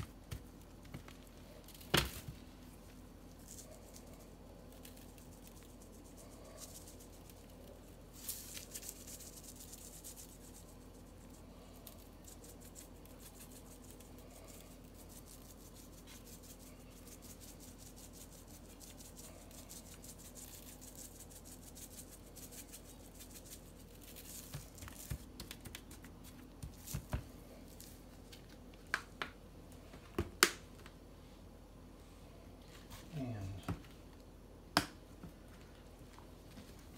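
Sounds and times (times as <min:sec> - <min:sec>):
seasoning shaker rattle: 0:03.2 - 0:25.4.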